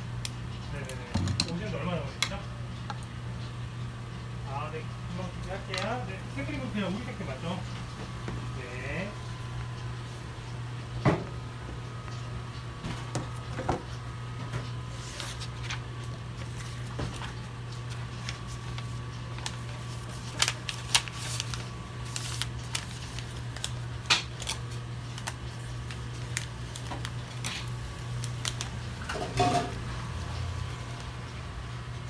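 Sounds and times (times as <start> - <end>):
steady low hum: 0.0 - 32.0
paper rustling: 14.9 - 28.7.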